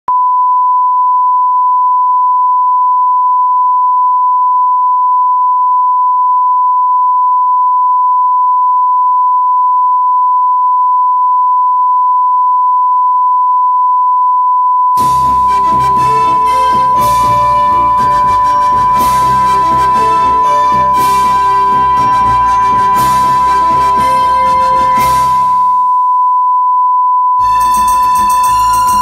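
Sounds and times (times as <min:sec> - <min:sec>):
steady test tone beep: 0:00.1 - 0:24.4, 0:25.0 - 0:29.0
orchestral music: 0:15.0 - 0:25.8.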